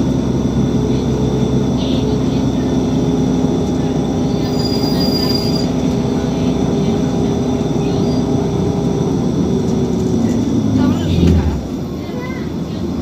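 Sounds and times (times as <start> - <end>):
bus engine drone with whine: 0.0 - 13.0
high-pitched squeal: 4.4 - 5.8.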